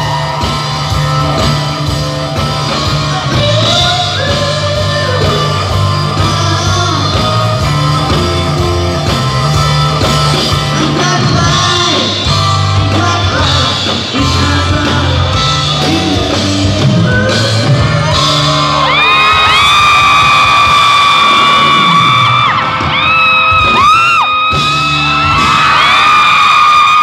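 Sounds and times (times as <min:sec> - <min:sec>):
bass guitar: 0:00.0 - 0:27.0
drums: 0:00.0 - 0:27.0
electric guitar: 0:00.0 - 0:27.0
man singing: 0:03.0 - 0:08.7, 0:10.5 - 0:19.7.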